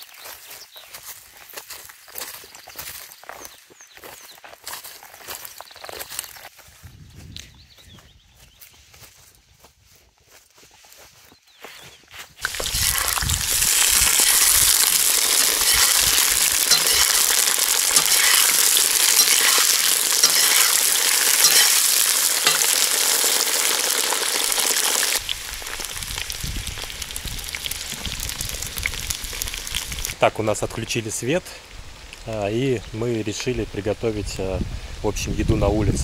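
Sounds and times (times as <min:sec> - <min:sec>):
potatoes sizzling in hot fat: 0:12.4 - 0:33.5.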